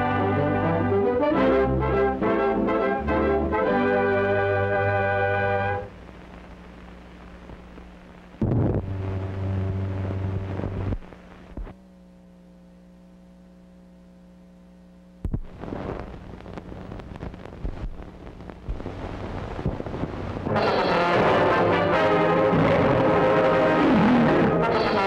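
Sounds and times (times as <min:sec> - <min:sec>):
held music chord: 0:00.0 - 0:05.9, 0:20.5 - 0:25.0
crackly hissy film noise: 0:00.0 - 0:25.0
electrical hum: 0:00.0 - 0:25.0.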